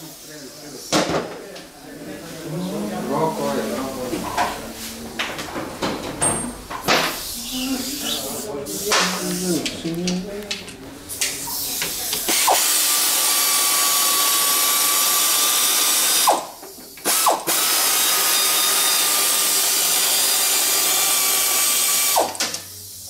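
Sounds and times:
air ratchet running: 11.2s - 23.0s.

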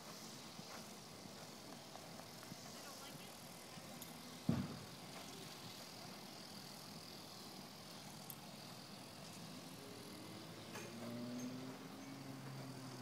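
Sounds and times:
faint outdoor background hiss: 0.0s - 13.0s
low thump: 4.5s - 4.8s.

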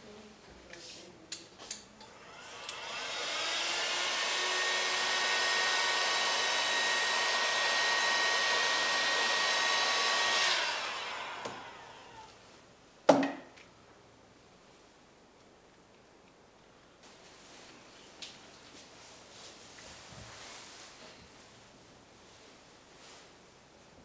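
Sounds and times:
heat gun blowing hot air: 2.1s - 12.3s.

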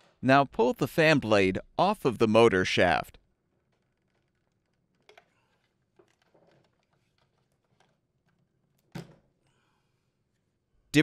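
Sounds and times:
plastic clicks and rubbing: 3.5s - 8.9s.

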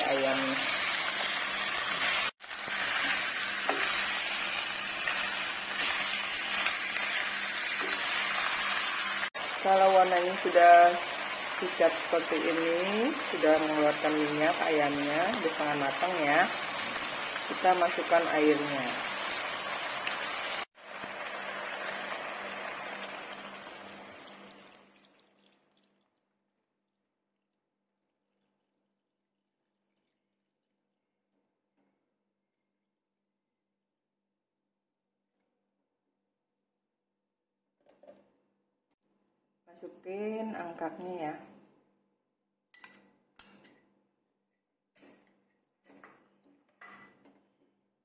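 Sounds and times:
spatula scraping and knocking wok: 0.0s - 8.9s
chicken sizzling in hot oil: 0.0s - 24.8s.

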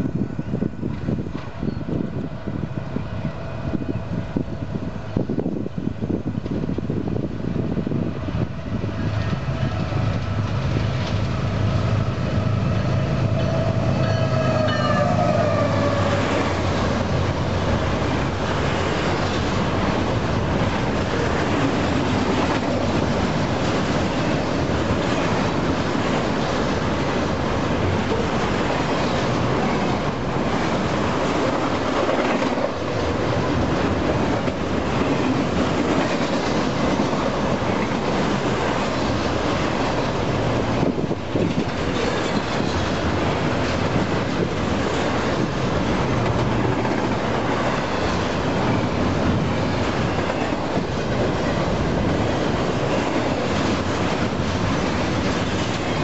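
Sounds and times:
diesel locomotives passing: 0.0s - 56.0s
multi-note horn tone: 13.0s - 16.4s.

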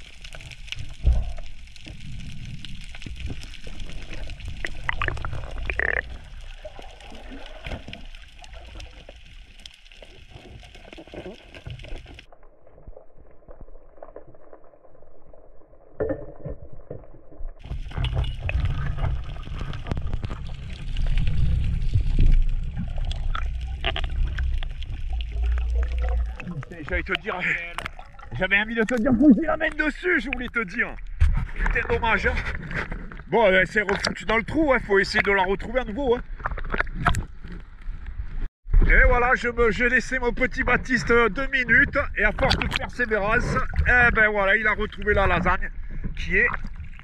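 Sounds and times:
muffled underwater water noise: 0.0s - 47.0s
low rumble: 16.6s - 33.1s.

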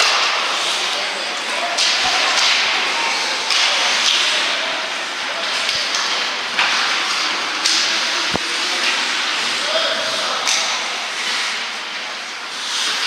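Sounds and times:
skates scraping ice: 11.2s - 13.0s.

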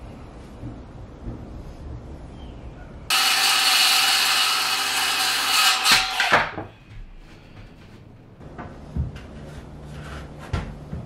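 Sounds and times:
circular saw cutting wood: 3.1s - 6.6s.

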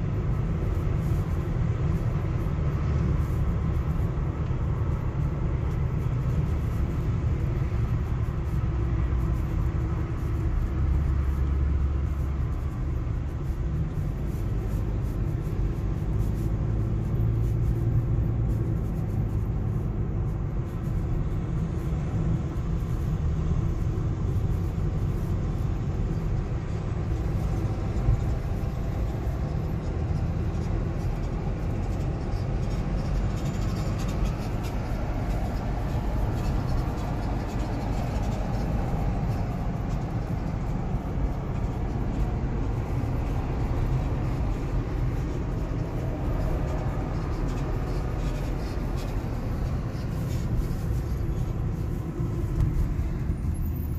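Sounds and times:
car road and engine rumble: 0.0s - 53.9s.

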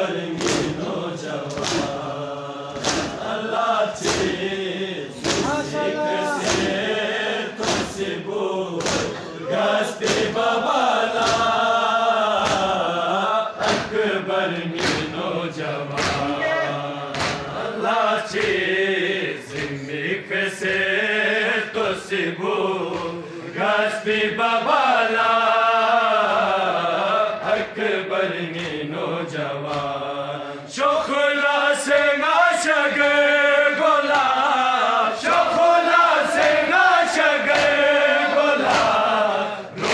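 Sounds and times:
men chanting in unison: 0.0s - 39.9s
hand slaps on chest: 0.4s - 0.8s, 1.4s - 2.0s, 2.7s - 3.2s, 4.0s - 4.4s, 5.2s - 5.7s, 6.4s - 6.8s, 7.6s - 8.0s, 8.8s - 9.2s, 10.0s - 10.4s, 11.2s - 11.6s, 12.4s - 12.8s, 13.6s - 14.0s, 14.8s - 15.2s, 16.0s - 16.3s, 17.1s - 17.5s, 22.8s - 23.2s, 28.5s - 28.9s, 29.7s - 30.0s, 37.5s - 37.8s, 38.6s - 39.1s.

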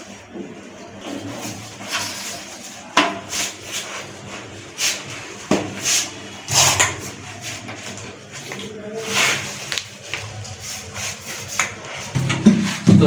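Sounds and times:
plastic pipe knocking: 12.2s - 13.0s.

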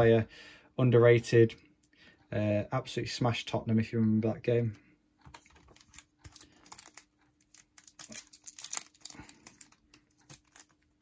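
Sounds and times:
foil wrapper crinkling: 5.4s - 11.0s.

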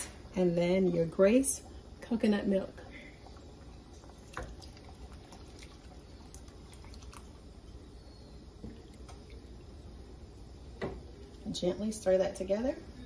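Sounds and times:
faint dripping: 0.0s - 12.3s
low steady hum: 0.0s - 13.0s
liquid trickling into a pot: 3.2s - 11.6s.

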